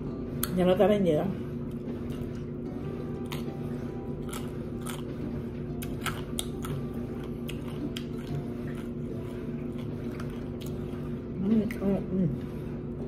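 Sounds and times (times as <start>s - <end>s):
steady low hum: 0.0s - 13.0s
tostada crunching: 1.6s - 11.2s.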